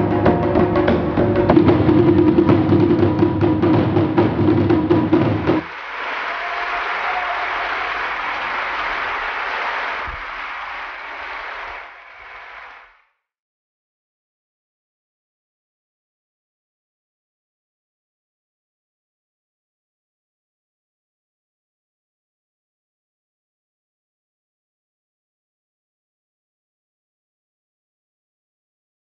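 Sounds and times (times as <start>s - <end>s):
taiko drums struck hard: 0.0s - 5.6s
crowd applauding: 5.2s - 13.1s.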